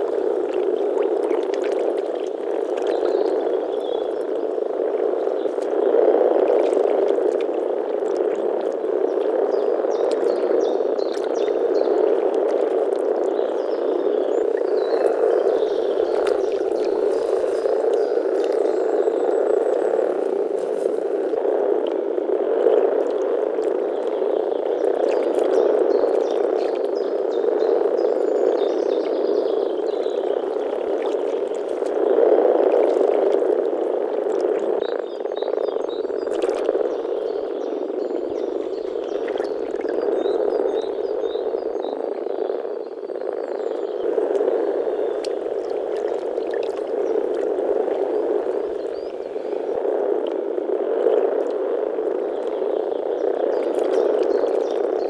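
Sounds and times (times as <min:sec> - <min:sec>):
frogs chorus grumbling: 0:00.0 - 0:55.0.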